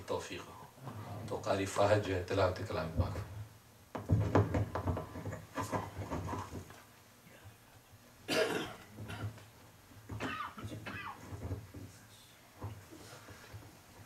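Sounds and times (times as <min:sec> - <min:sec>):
person coughing: 0:08.3 - 0:09.4, 0:10.2 - 0:11.2
shuffling: 0:10.6 - 0:14.0.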